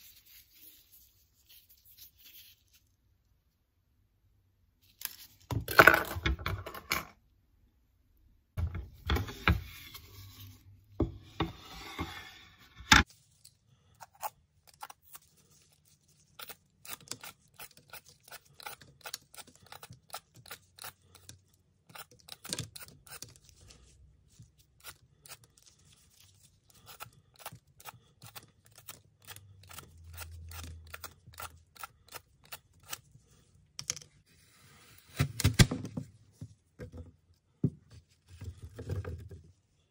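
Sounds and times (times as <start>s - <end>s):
peeler scraping apple skin: 14.0s - 23.8s, 24.6s - 33.3s.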